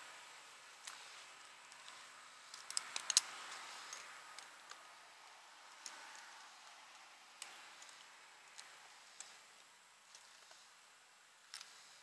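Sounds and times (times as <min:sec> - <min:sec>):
climbing gear clicks and knocks: 0:01.7 - 0:10.5.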